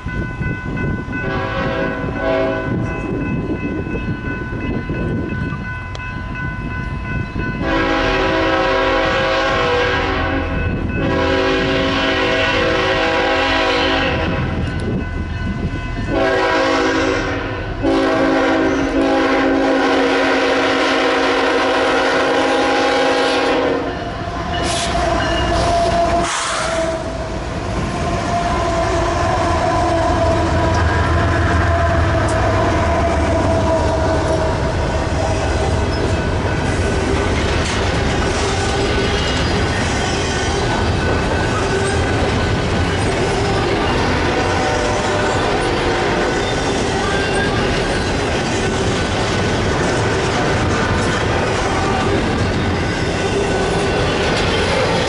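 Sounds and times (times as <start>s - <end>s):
locomotive engine rumble: 0.0s - 55.0s
locomotive air horn blasts: 1.2s - 2.7s, 7.6s - 14.6s, 16.1s - 27.3s, 28.0s - 35.6s, 44.0s - 47.7s
train wheel clatter: 23.9s - 27.0s, 32.1s - 55.0s.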